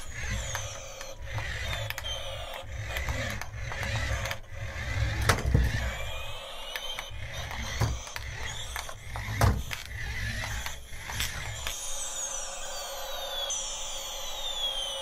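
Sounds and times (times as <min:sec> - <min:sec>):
sharp clicks: 0:00.0 - 0:12.1
toy motor and gears whirring: 0:00.0 - 0:15.0.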